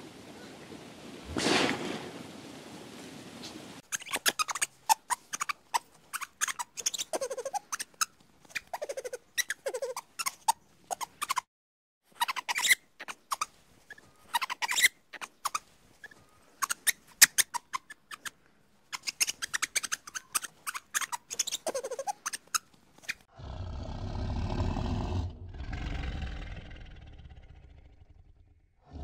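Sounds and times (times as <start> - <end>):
lemur clicks and squeaks: 3.8 - 11.5, 12.1 - 23.3
big cat growls: 23.3 - 29.0.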